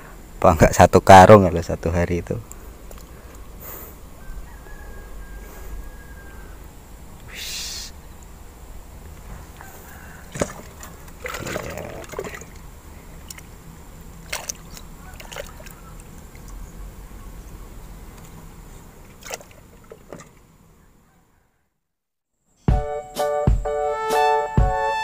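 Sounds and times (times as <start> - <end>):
water sloshing and splashing: 10.2 - 16.6, 19.0 - 20.5.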